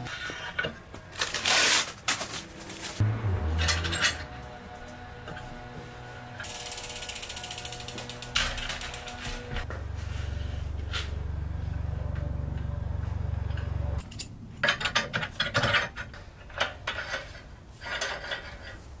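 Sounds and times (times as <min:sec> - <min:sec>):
steady low hum: 0:02.9 - 0:14.5
ratcheting metallic clicks and rattles: 0:06.4 - 0:09.5.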